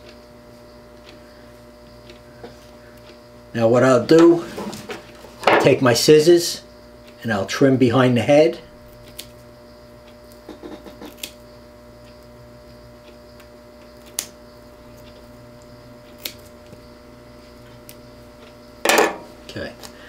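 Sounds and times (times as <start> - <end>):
steady hum: 0.0 - 20.0
scissors snipping hair: 9.0 - 9.4, 10.2 - 11.4, 16.1 - 16.5.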